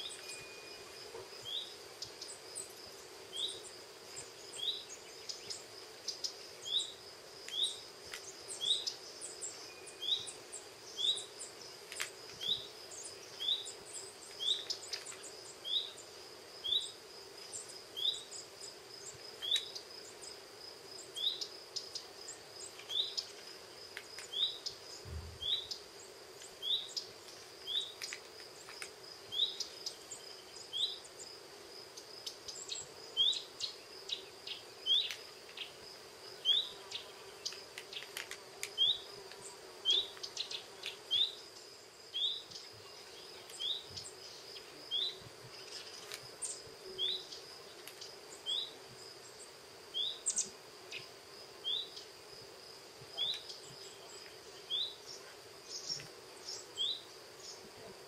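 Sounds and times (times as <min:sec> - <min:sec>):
faint high whine: 0:00.0 - 0:02.4, 0:09.2 - 0:11.6.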